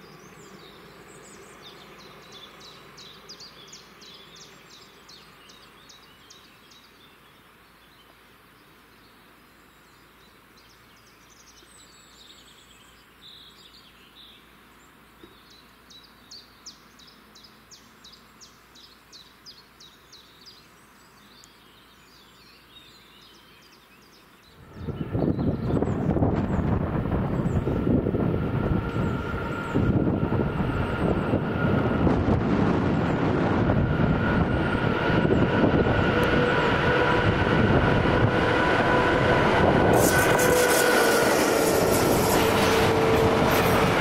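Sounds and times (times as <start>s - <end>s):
birds singing high notes: 24.5s - 26.2s
train rumble: 24.6s - 44.0s.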